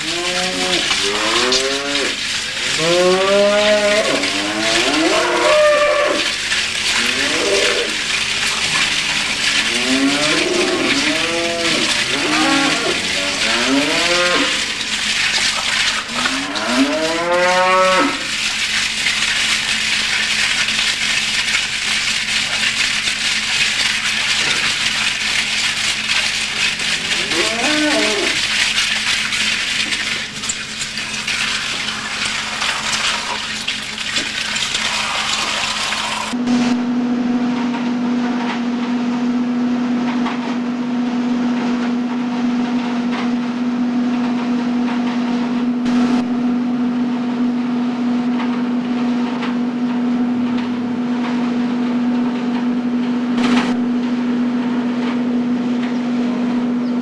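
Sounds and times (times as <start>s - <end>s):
cattle mooing: 0.0s - 8.0s, 9.5s - 14.7s, 15.8s - 18.3s, 26.8s - 28.5s
steady hum and hiss: 0.0s - 57.0s.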